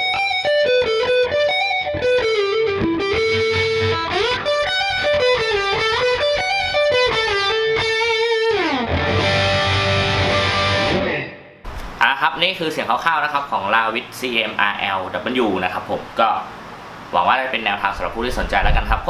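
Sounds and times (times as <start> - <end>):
distorted electric guitar lead: 0.0 - 11.6.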